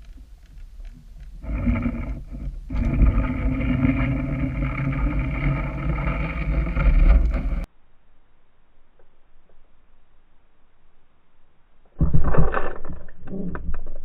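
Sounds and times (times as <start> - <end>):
boat motor underwater drone: 0.0 - 7.7.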